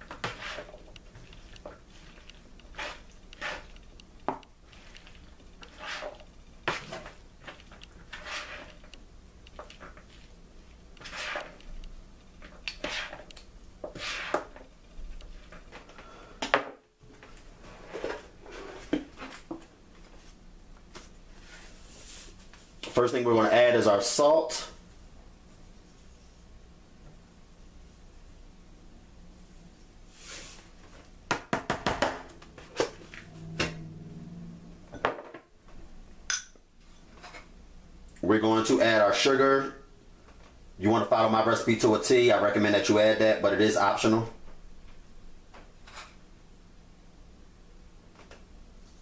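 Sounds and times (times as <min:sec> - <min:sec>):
pasta stirred against bowl: 0:00.0 - 0:15.9
sharp taps of kitchen items: 0:31.3 - 0:32.3.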